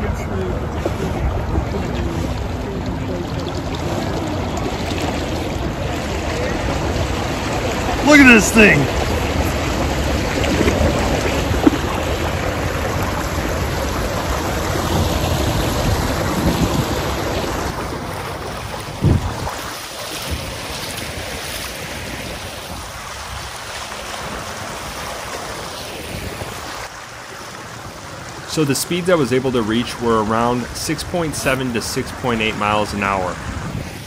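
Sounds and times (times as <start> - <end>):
wind on microphone: 0.0 - 8.0, 8.9 - 25.0, 25.6 - 26.8, 33.3 - 34.0
water rushing past kayak: 0.0 - 34.0.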